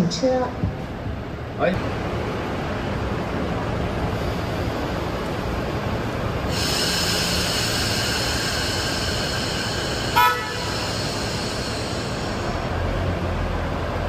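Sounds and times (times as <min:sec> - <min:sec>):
idling railcar rumble: 0:00.0 - 0:14.0
steady high hiss: 0:01.8 - 0:13.8
railcar horn toot: 0:10.2 - 0:10.8.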